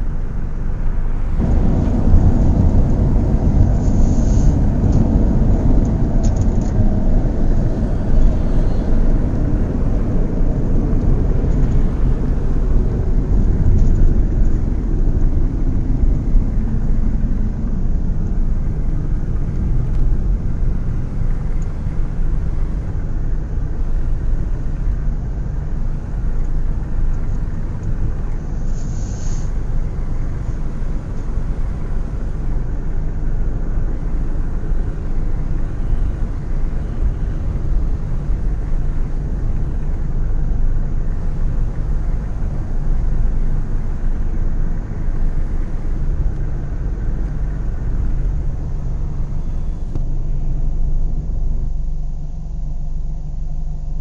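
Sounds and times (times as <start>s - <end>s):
heavy vehicle engines rumbling: 0.0s - 54.0s
short high hiss: 28.4s - 32.4s.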